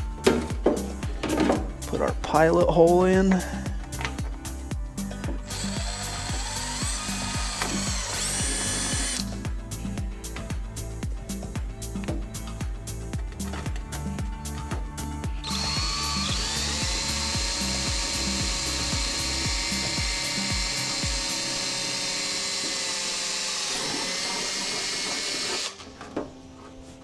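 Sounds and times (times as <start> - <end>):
background music with low beat: 0.0 - 23.0
electric drill drilling: 5.4 - 9.3, 15.4 - 25.9.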